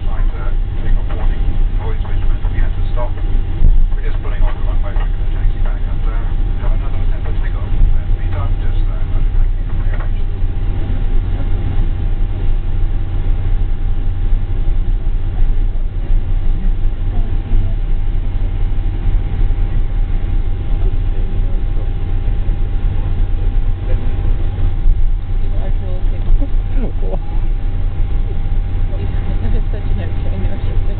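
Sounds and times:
low engine rumble: 0:00.0 - 0:30.9
thin steady whine: 0:00.0 - 0:30.9.

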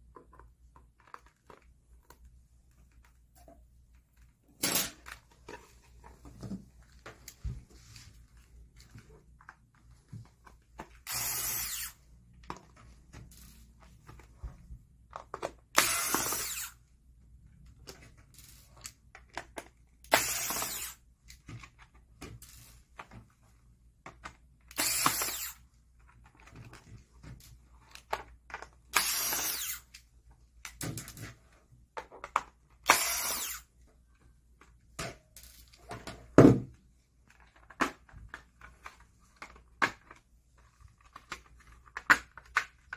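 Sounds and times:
power screwdriver running: 0:11.0 - 0:12.0, 0:15.8 - 0:16.8, 0:20.1 - 0:21.0, 0:24.7 - 0:25.6, 0:28.9 - 0:29.8, 0:32.8 - 0:33.7.

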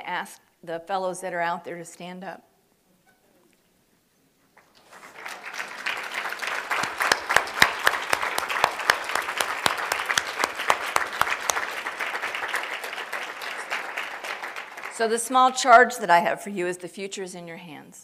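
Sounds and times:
audience applause: 0:04.6 - 0:15.3.

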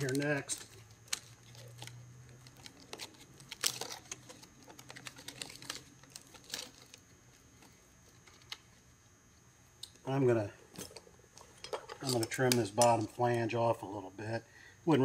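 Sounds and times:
thin metal clicking and crinkling: 0:00.0 - 0:08.8, 0:10.7 - 0:13.5
faint low hum: 0:00.0 - 0:15.0.

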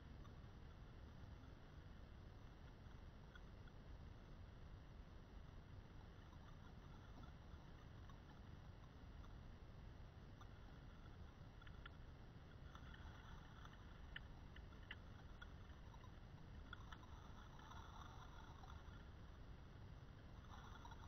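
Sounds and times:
faint ticks: 0:00.0 - 0:21.0.

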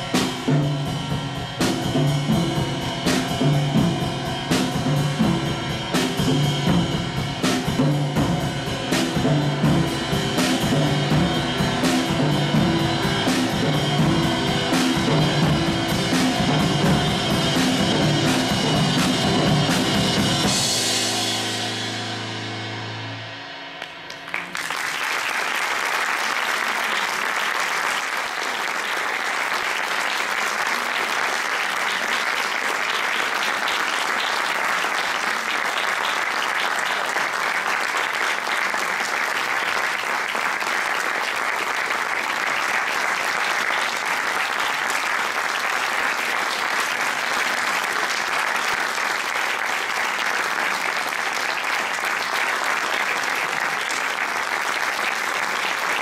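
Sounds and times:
audience applauding: 0:23.8 - 0:56.0.

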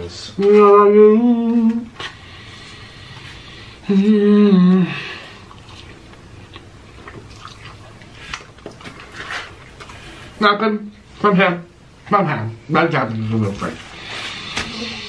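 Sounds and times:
man humming with enjoyment: 0:03.8 - 0:05.2
wet chewing: 0:05.2 - 0:10.4.

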